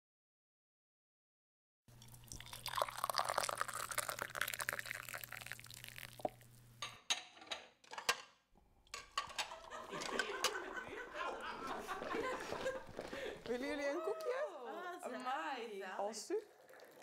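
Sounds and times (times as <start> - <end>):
tea pouring into cups: 1.9 - 6.6, 11.4 - 14.4, 15.9 - 17.0.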